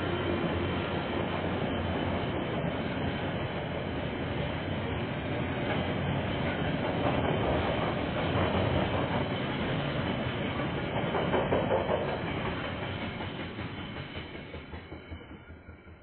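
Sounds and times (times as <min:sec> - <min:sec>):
train wheels rumbling on rail: 0:00.0 - 0:16.0
clacks at rail joints: 0:05.5 - 0:15.9.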